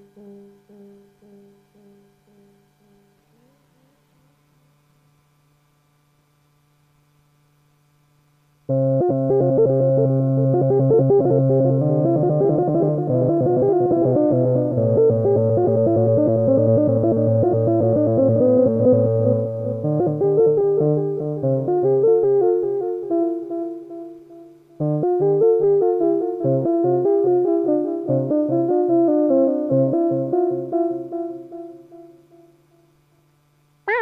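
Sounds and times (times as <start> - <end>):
faint low synth tone: 0.0 - 4.4.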